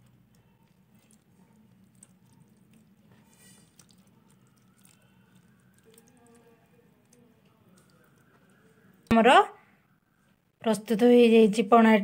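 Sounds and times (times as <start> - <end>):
wet squishing: 0.0 - 9.2.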